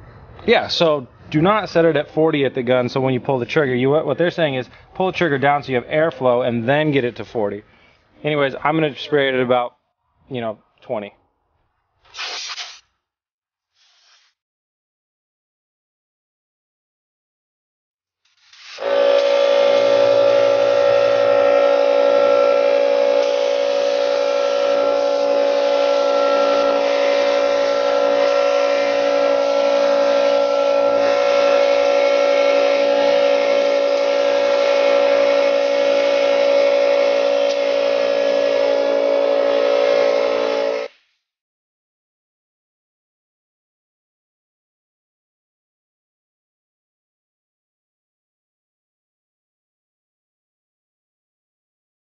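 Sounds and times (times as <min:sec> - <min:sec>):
spray gun hissing: 0:12.1 - 0:12.8, 0:13.8 - 0:14.3, 0:18.3 - 0:39.4
air compressor droning: 0:18.6 - 0:40.9.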